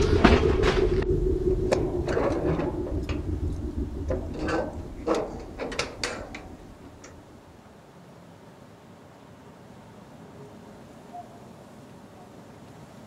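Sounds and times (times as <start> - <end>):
carriage door latch clicking and clanking: 4.1 - 7.2.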